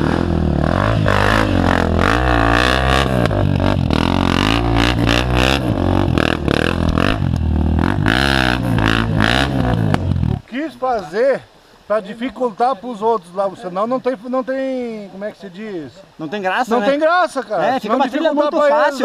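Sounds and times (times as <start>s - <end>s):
motorcycle engines revving: 0.0s - 10.5s.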